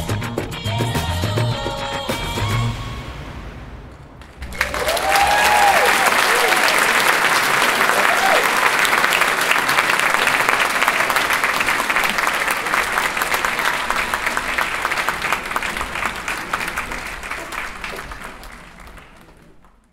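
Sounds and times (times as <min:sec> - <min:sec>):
audience applauding: 0:04.2 - 0:19.9.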